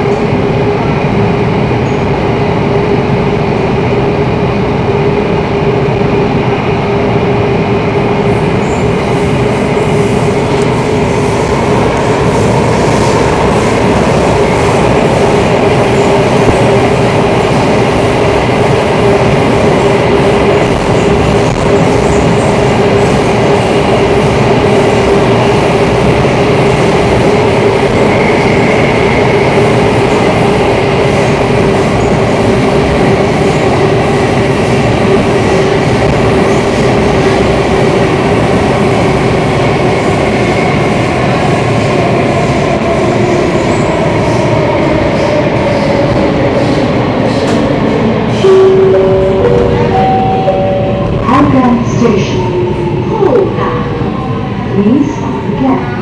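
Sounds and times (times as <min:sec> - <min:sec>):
train wheels rumbling on rail: 0:00.0 - 0:56.0
train whine: 0:00.0 - 0:56.0.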